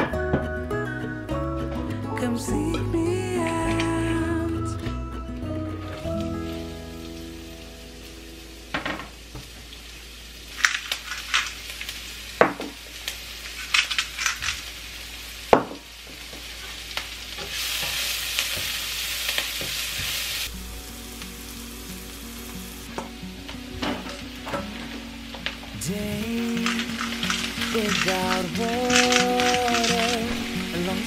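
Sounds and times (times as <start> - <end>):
onions sizzling in oil: 5.8 - 31.0
sharp clicks and pops: 10.5 - 12.0, 13.0 - 14.7, 25.4 - 30.4.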